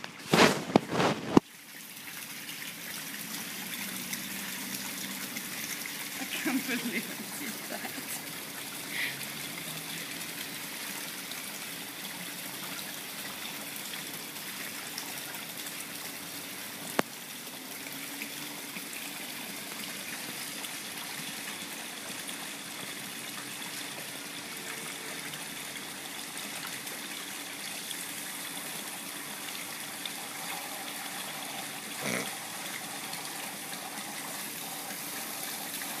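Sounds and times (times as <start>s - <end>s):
water splashing into pool: 0.0s - 36.0s.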